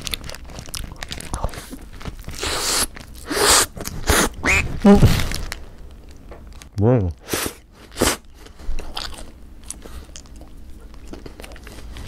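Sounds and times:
crunchy chewing: 0.0s - 4.6s, 7.9s - 12.0s.

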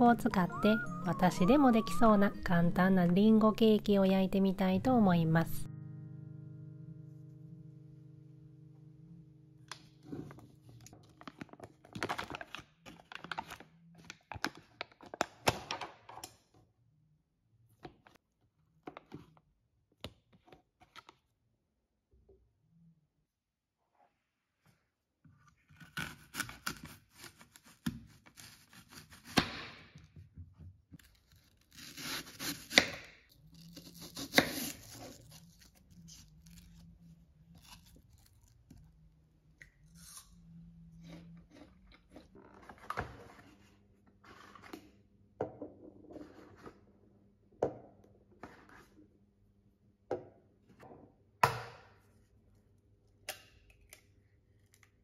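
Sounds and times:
knife slicing apples: 25.8s - 29.6s, 31.4s - 36.8s.

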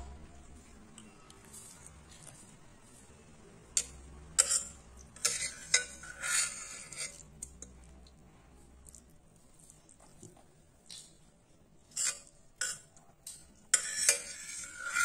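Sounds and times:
metal spoon scraping glass bowl: 3.8s - 7.3s, 11.9s - 15.0s.

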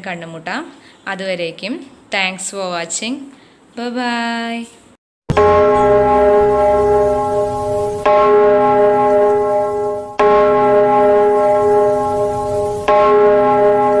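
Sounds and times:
bell-like jingle tone: 5.3s - 8.4s.

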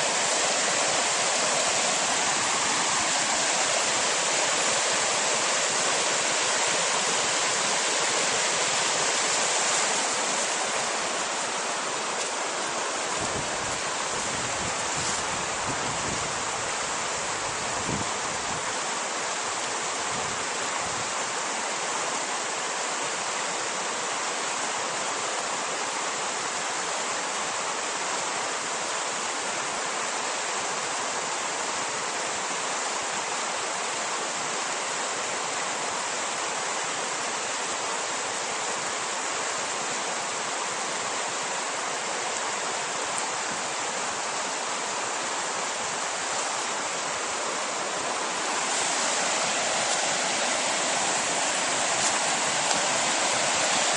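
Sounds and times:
river rushing over rocks: 0.0s - 53.9s.

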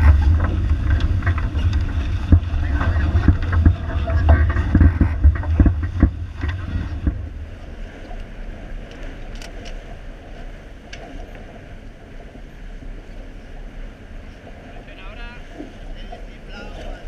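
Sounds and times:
water splashing along boat hull: 0.0s - 17.0s
wind buffeting microphone: 0.0s - 17.0s
faint clicks: 8.0s - 9.8s.

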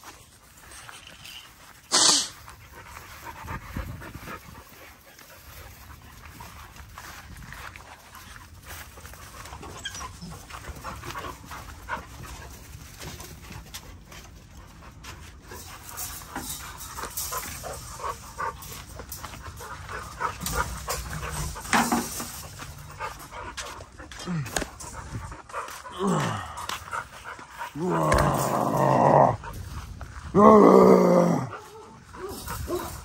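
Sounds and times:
puppies making dog sounds: 0.0s - 30.5s.

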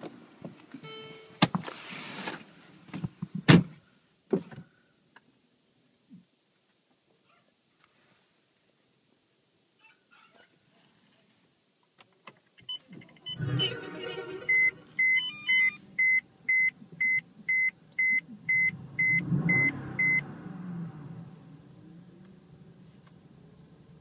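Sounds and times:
dashboard warning chime beeping: 0.8s - 1.5s, 12.6s - 20.2s
car engine starting and revving: 13.2s - 13.9s, 18.4s - 24.0s.

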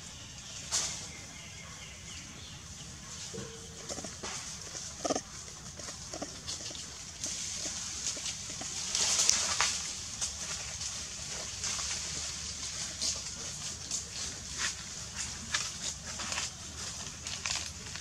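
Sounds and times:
macaque calls: 3.8s - 8.6s.

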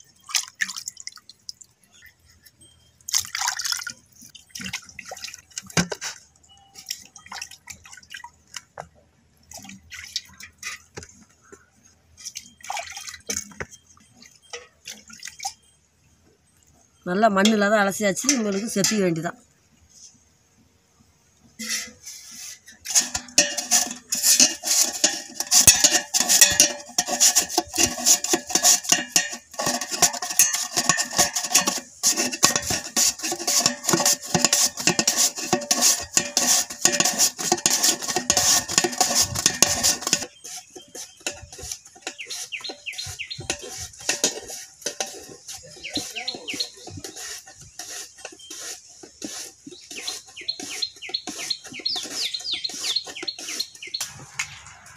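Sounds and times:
slices dropping into metal pot: 22.9s - 40.3s
birds chirping: 40.2s - 44.0s, 45.4s - 54.9s.

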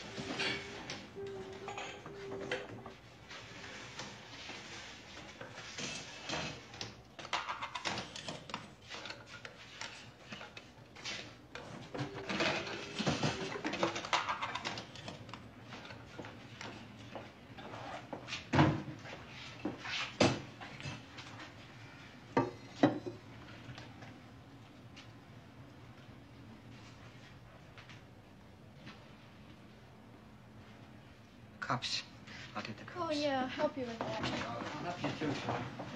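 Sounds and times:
furniture and glasses clattering: 11.6s - 16.2s.

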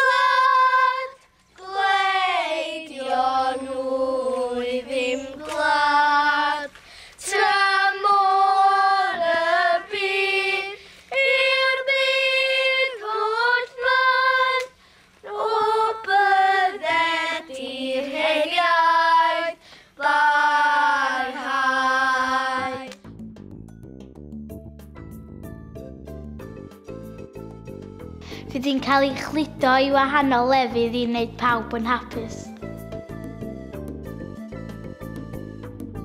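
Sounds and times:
children singing in unison: 0.0s - 23.0s.

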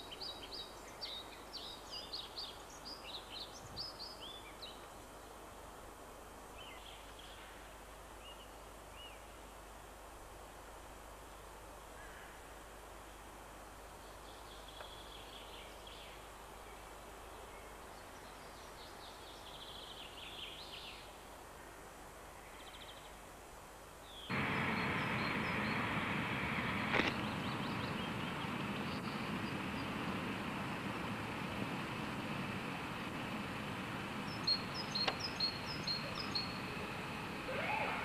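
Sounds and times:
loud steady rushing noise: 24.3s - 38.0s
faint bird chirps: 34.3s - 38.0s.

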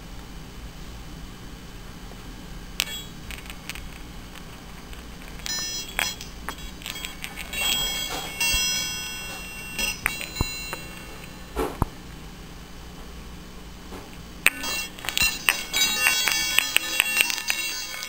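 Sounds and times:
metal balls clicking: 2.8s - 8.7s, 14.5s - 18.0s
bell-like chiming balls: 5.4s - 11.6s, 14.5s - 18.0s.

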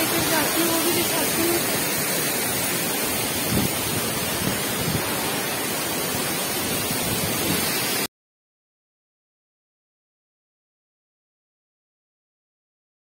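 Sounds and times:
waterfall rushing: 0.0s - 8.1s.

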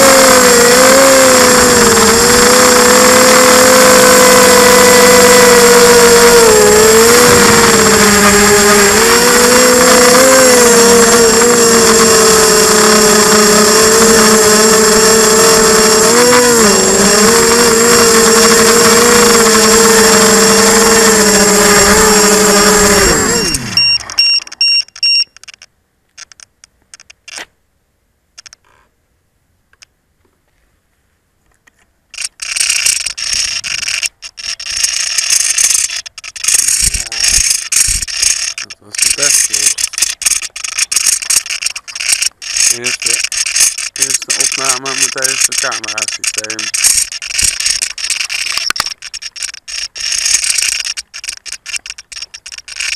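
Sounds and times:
quadcopter motors whining: 0.0s - 25.2s, 32.2s - 52.9s
short high beeps: 23.2s - 25.4s.

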